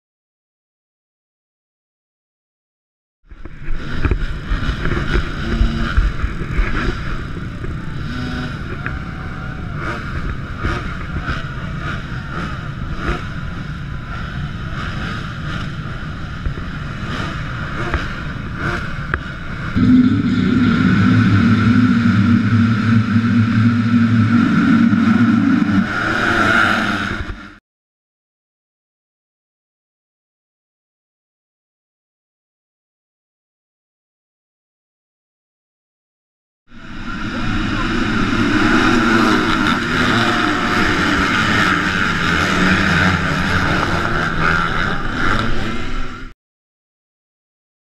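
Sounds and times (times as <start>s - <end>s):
motocross bikes revving: 3.4s - 27.6s, 36.7s - 46.3s.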